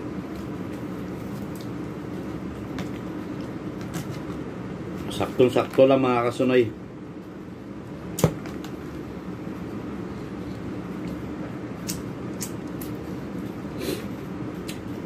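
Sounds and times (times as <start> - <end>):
steady low hum: 0.0 - 15.0
mouth clicks while chewing: 11.8 - 13.0.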